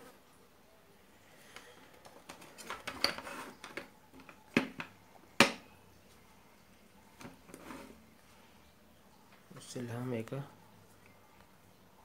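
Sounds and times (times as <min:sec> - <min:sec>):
plastic case handling rustling: 0:01.8 - 0:04.9.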